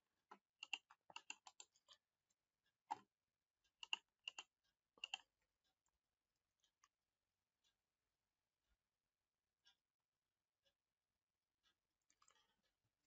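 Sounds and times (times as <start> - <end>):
keyboard and mouse clicks: 0.3 - 2.0, 3.8 - 5.3, 12.1 - 12.6.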